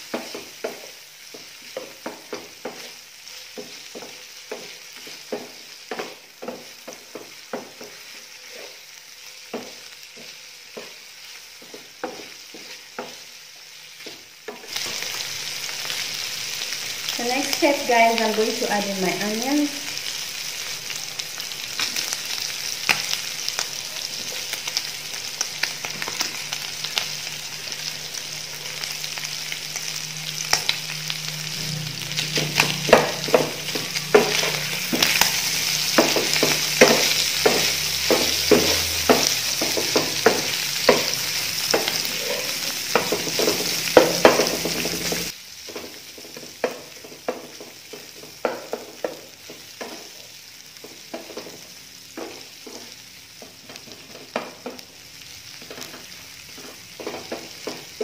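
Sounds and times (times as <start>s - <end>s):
spatula tapping and scraping pan: 0.0s - 8.8s, 9.4s - 13.3s, 32.3s - 50.2s, 50.8s - 54.9s, 55.6s - 58.0s
meat and onions sizzling in pan: 0.0s - 58.0s.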